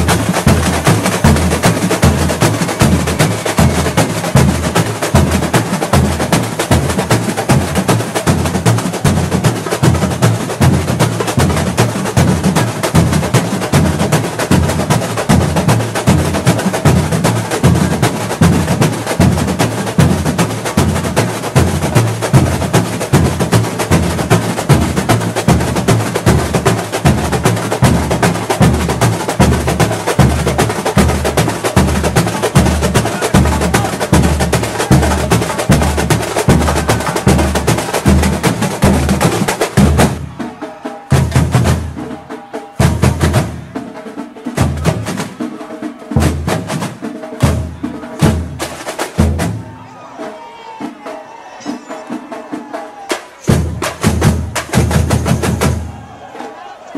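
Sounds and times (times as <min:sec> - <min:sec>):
fast higher drums and percussion: 0:00.0 - 0:56.9
samba drum ensemble playing: 0:00.0 - 0:56.9
deep bass drums beating: 0:21.6 - 0:40.4.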